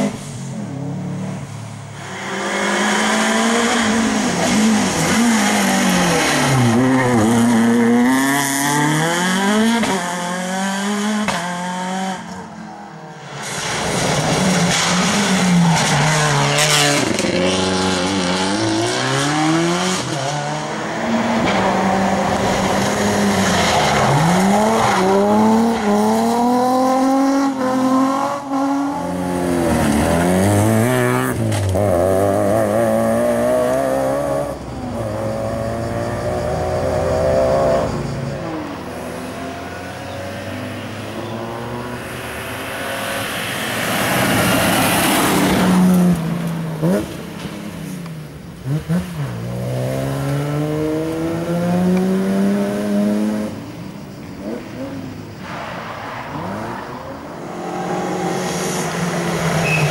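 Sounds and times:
rally cars passing at speed: 0:00.0 - 0:59.9
engines revving hard: 0:13.4 - 0:47.2.

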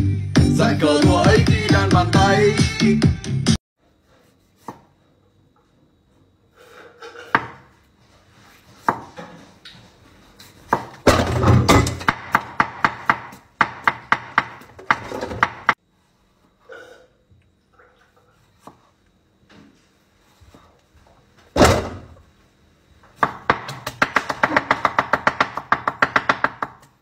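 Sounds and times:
knife chopping on wooden board: 0:10.7 - 0:11.2, 0:12.1 - 0:15.8, 0:23.2 - 0:26.9.

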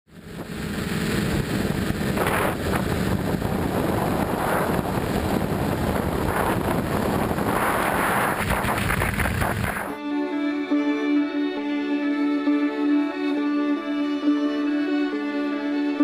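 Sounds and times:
quadcopter motors humming: 0:00.1 - 0:10.0
wind rushing over microphone: 0:00.2 - 0:10.0.

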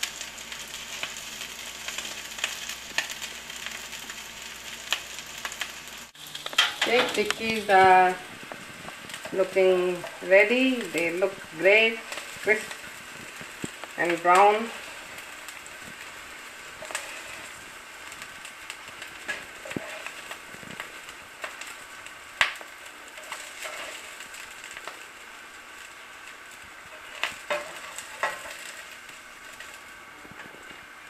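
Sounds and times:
patties sizzling in oil: 0:00.0 - 0:31.0
spatula scraping a pan: 0:14.7 - 0:17.7, 0:19.0 - 0:21.8, 0:23.1 - 0:24.5, 0:26.9 - 0:29.8.

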